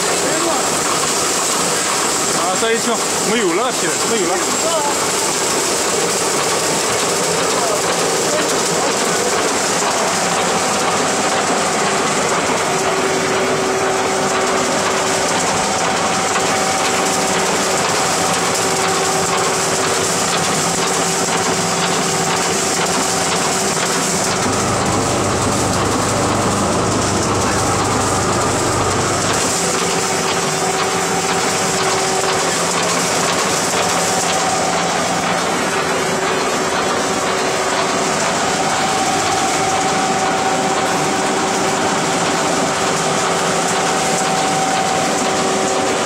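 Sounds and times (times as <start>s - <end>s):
trommel screen motor running: 15.8s - 35.2s
deeper hum: 24.1s - 30.2s.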